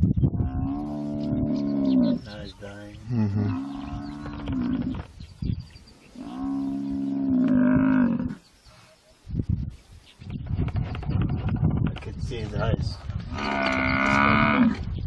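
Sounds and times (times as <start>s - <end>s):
buffalo bellowing: 13.3s - 14.8s.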